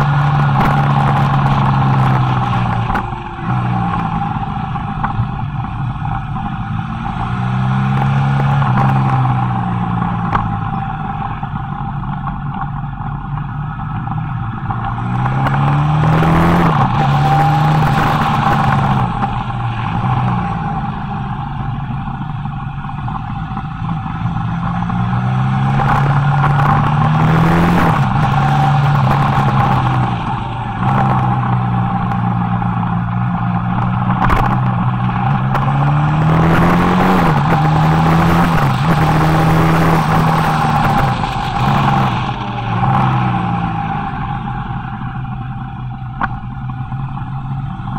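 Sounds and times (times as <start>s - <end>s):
motorcycle engine revving: 0.0s - 47.9s
wind rush on microphone: 23.8s - 45.2s.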